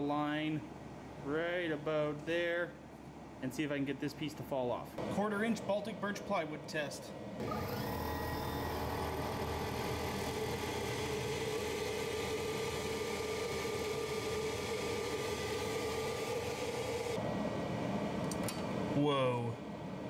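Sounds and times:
air assist and fans running: 0:00.0 - 0:20.0
laser cutter humming: 0:07.1 - 0:20.0.

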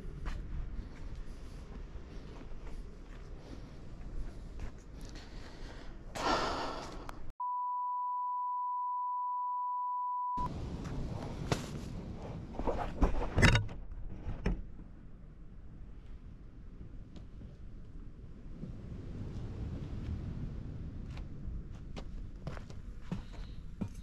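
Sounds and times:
censor bleep: 0:07.4 - 0:10.5.

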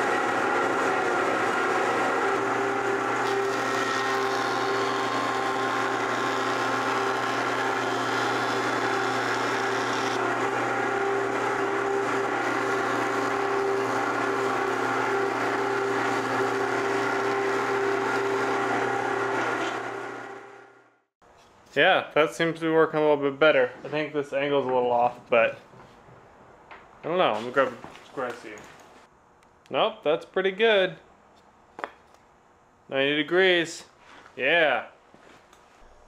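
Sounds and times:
jointer machine hum: 0:00.0 - 0:21.0.

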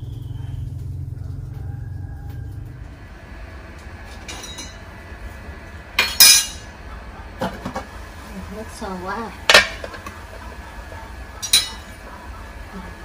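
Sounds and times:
low rumble: 0:00.0 - 0:06.0
soup boiling in a pot: 0:00.0 - 0:13.0.

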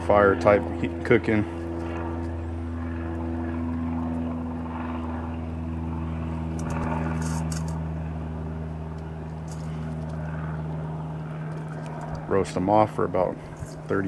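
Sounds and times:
motor drone: 0:00.0 - 0:14.0
light rustles and clicks: 0:06.5 - 0:07.8, 0:08.9 - 0:10.2, 0:11.4 - 0:12.3.

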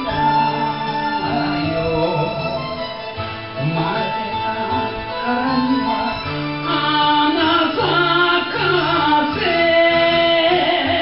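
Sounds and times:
ballad singing with band backing: 0:03.6 - 0:11.0.

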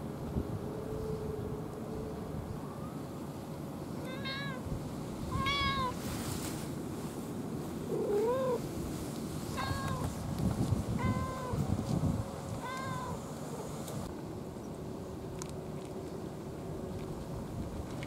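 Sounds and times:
cat meowing: 0:04.0 - 0:04.7, 0:05.3 - 0:06.0, 0:09.5 - 0:10.1, 0:11.0 - 0:11.6, 0:12.6 - 0:13.2.

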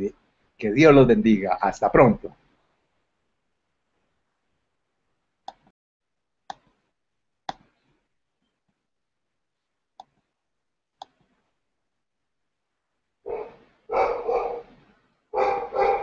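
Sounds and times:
computer mouse clicks: 0:06.5 - 0:06.7, 0:11.0 - 0:11.3.

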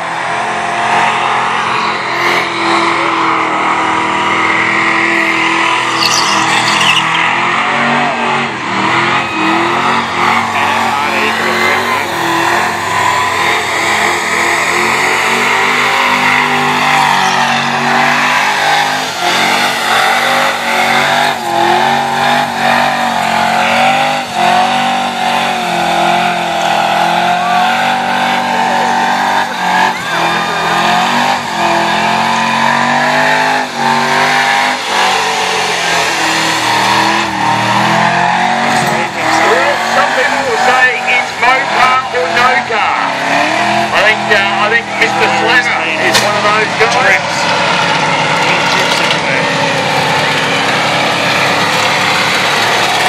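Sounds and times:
engine at high revs: 0:00.0 - 0:53.0
tyres spinning: 0:08.5 - 0:53.0.

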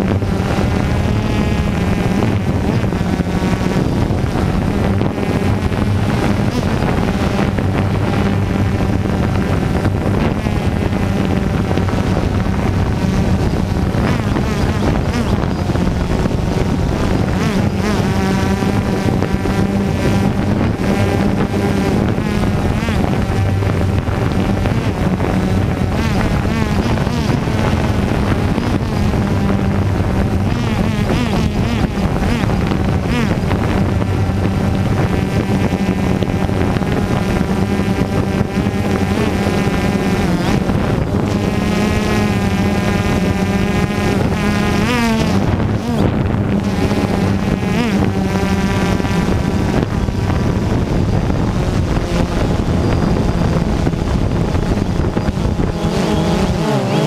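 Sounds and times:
drone propellers buzzing: 0:00.0 - 0:57.0
wind on microphone: 0:00.0 - 0:57.0.

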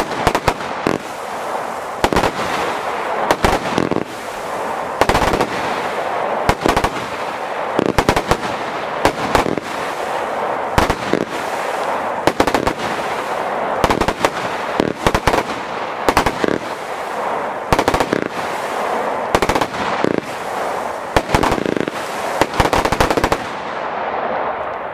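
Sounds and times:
firework bangs: 0:00.0 - 0:24.6
continuous hiss: 0:00.0 - 0:24.9.

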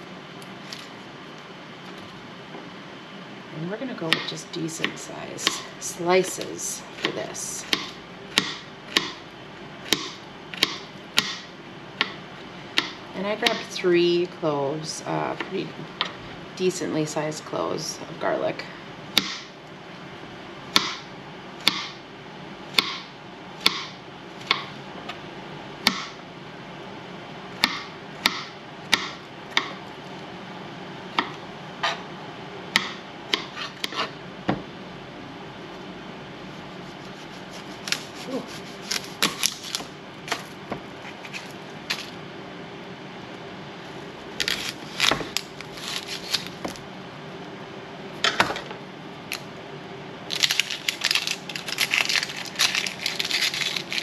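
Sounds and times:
faint steady hum: 0:00.0 - 0:54.0
knife chopping on cutting board: 0:07.0 - 0:09.2, 0:32.8 - 0:34.6.

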